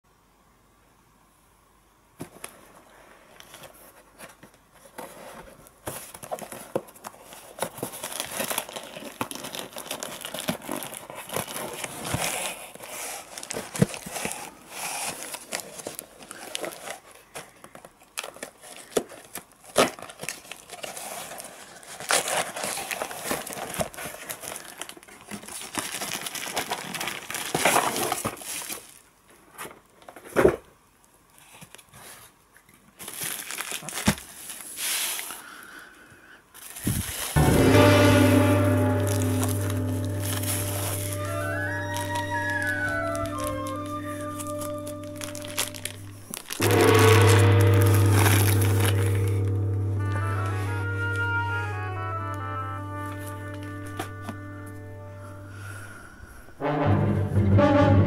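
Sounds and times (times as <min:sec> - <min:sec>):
cardboard scraping and rustling: 0:02.2 - 0:30.7
bubble wrap crinkling: 0:03.4 - 0:30.1, 0:32.8 - 0:35.6, 0:36.5 - 0:55.8
packing tape tearing: 0:05.8 - 0:29.0, 0:33.0 - 0:35.4, 0:39.0 - 0:51.4.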